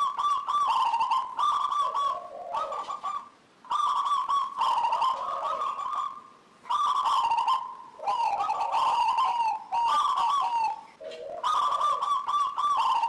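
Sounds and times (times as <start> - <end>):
dove cooing: 0.0 - 13.0.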